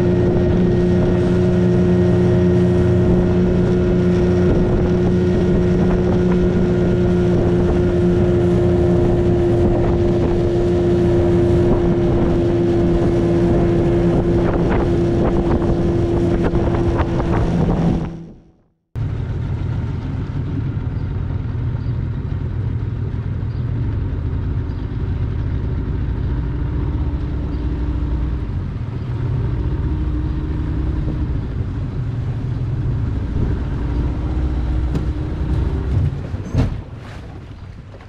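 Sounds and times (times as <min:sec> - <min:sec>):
wind buffeting microphone: 0:00.0 - 0:18.6, 0:26.3 - 0:38.0
outboard motor running: 0:00.0 - 0:38.0.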